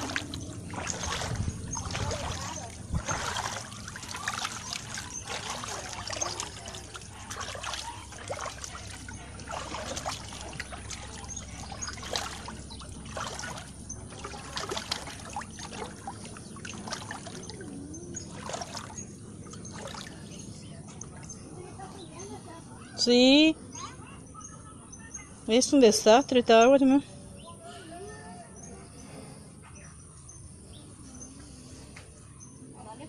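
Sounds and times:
floodwater splashing and trickling: 0.0 - 22.5.

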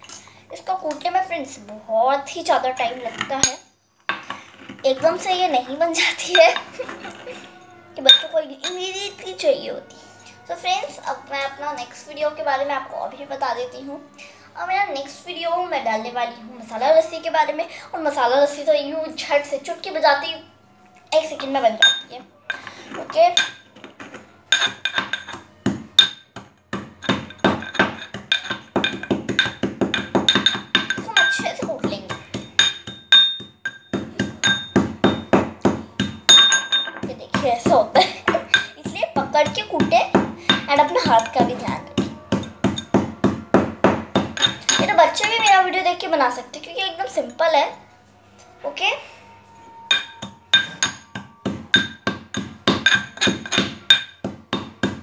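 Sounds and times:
metal pestle pounding in mortar: 22.6 - 45.5, 49.9 - 55.0.

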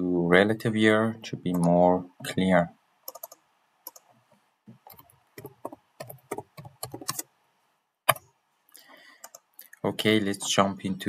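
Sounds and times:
typing on keyboard: 3.1 - 4.1, 4.9 - 7.3.

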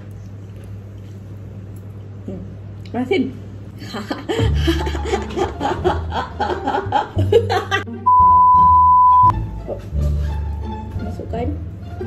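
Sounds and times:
woman laughing: 3.8 - 7.9
background music: 4.5 - 12.0
high test tone beep: 8.1 - 9.3.

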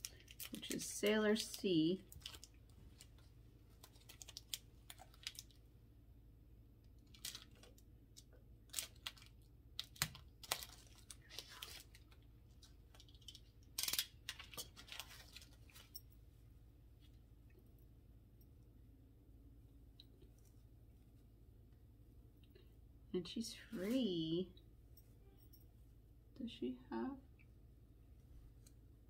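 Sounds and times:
plastic packaging crinkling: 0.0 - 5.6, 7.0 - 16.0.

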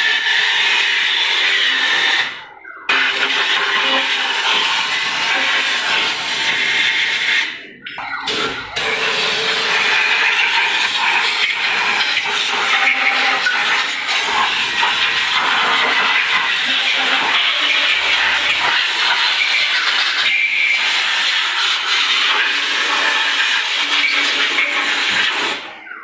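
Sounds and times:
compressed-air spray gun hissing: 3.1 - 7.5, 8.8 - 25.6.

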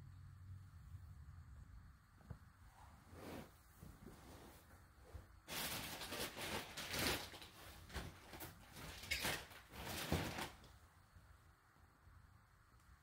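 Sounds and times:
rustling handling noise: 2.2 - 10.8.

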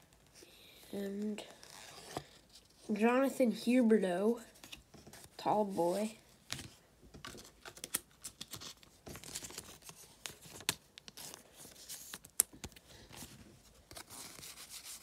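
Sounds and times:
trading cards sliding and rustling: 4.6 - 15.0.

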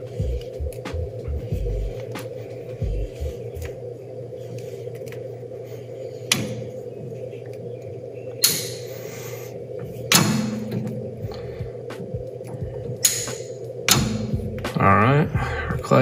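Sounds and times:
flaring tool clicking: 10.1 - 14.8.

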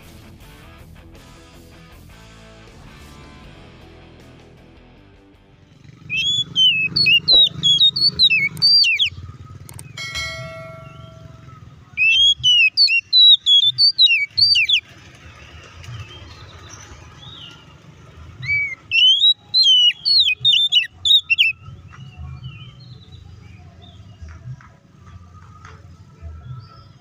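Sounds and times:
bird singing whistled phrases: 6.1 - 9.2, 12.0 - 14.9, 18.4 - 23.2.

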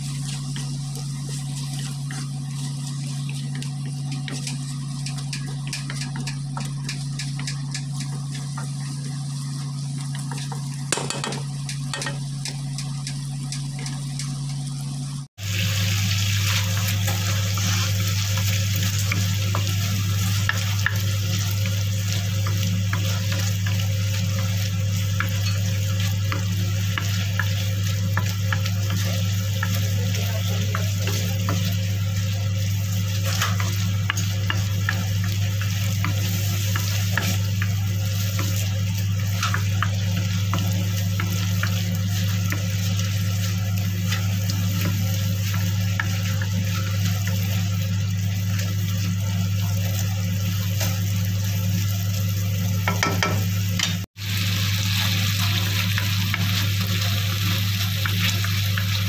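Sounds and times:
vegetables sizzling in oil: 0.0 - 59.0
wooden spatula scraping wok: 16.4 - 47.7.

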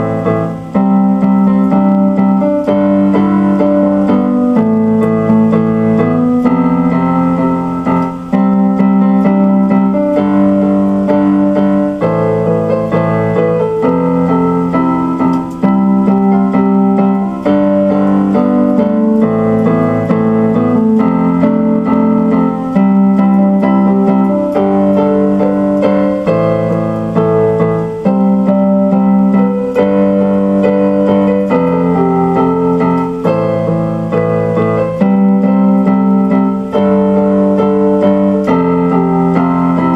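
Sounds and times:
keyboard piano chords: 0.0 - 39.9.

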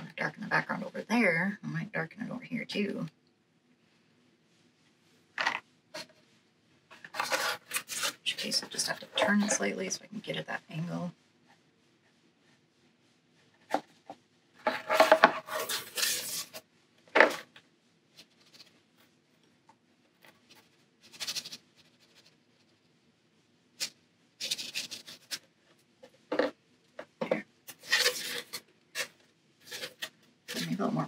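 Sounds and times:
brush scrubbing paint: 11.4 - 16.8, 20.2 - 23.0, 23.8 - 26.3, 27.7 - 31.0
paper rubbing on tabletop: 11.5 - 17.4, 20.3 - 22.9, 23.8 - 25.5, 27.7 - 31.0.

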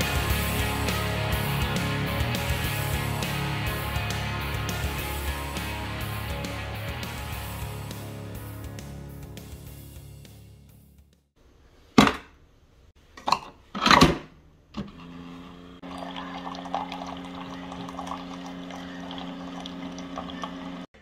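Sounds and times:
background music: 0.0 - 11.2
coffee maker pump hum: 14.8 - 20.9
coffee pouring into mug: 15.8 - 20.9.

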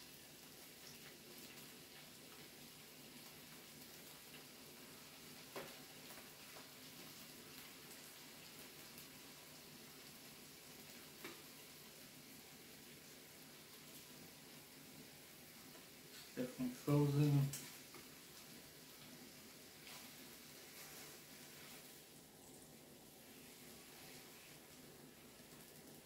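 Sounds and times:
food sizzling on a grill: 0.0 - 26.0.

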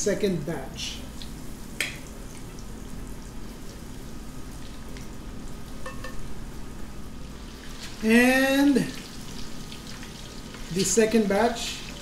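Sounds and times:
chicken sizzling in hot oil: 7.1 - 12.0.

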